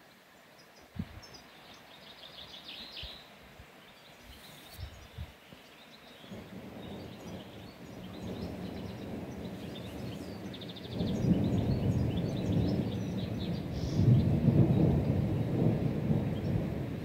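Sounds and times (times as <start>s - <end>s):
small birds chirping: 0.0s - 16.7s
rolling thunder: 6.3s - 17.0s.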